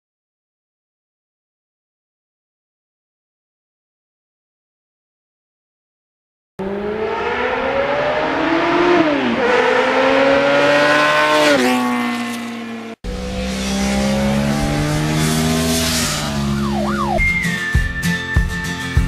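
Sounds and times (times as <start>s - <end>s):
motorcycle accelerating past: 6.6s - 17.2s.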